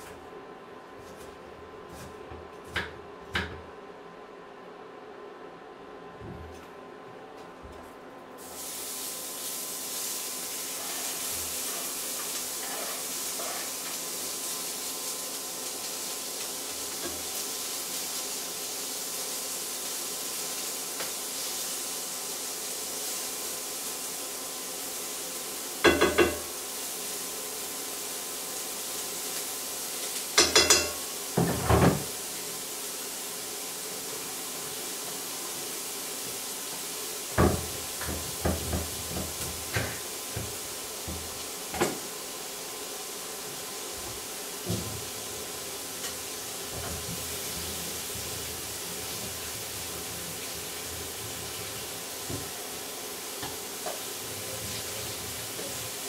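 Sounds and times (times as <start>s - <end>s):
onion and sausages sizzling in pan: 8.4s - 56.0s.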